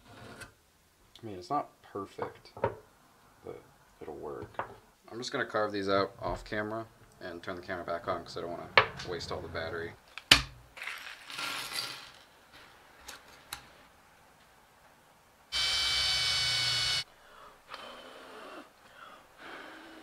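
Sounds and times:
cordless drill boring wood: 0:15.5 - 0:17.0.

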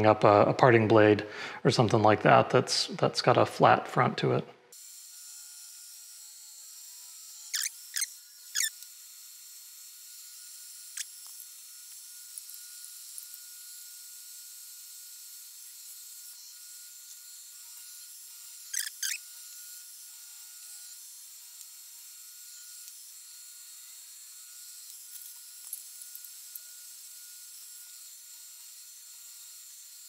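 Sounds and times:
bursts of cutting noise: 0:07.2 - 0:08.9, 0:17.6 - 0:19.9.

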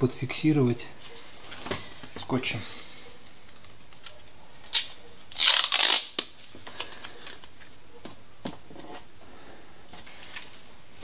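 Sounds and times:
adhesive tape ripping: 0:04.1 - 0:07.5.

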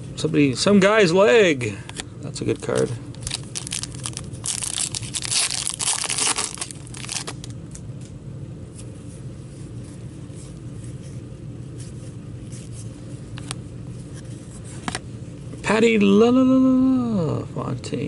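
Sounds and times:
steady low hum: 0:00.0 - 0:18.0
foil wrapper tearing and crinkling: 0:02.7 - 0:07.5.

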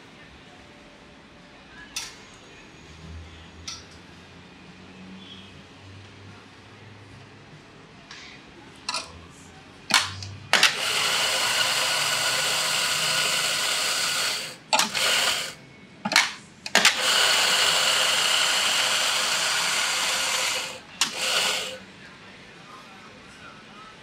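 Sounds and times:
espresso grinder grinding coffee: 0:10.6 - 0:15.6, 0:16.7 - 0:21.8.

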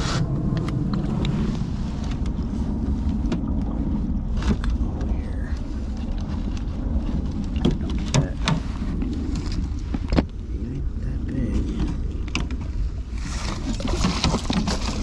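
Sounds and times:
steady low rumble: 0:00.0 - 0:15.0
rustling and clattering: 0:11.6 - 0:15.0.

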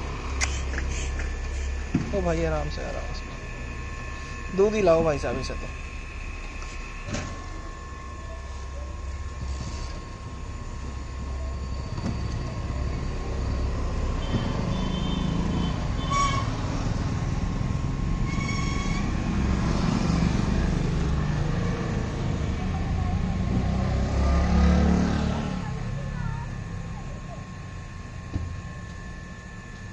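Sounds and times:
rumble of passing vehicles: 0:09.2 - 0:29.9
short horn toots: 0:14.2 - 0:16.6.

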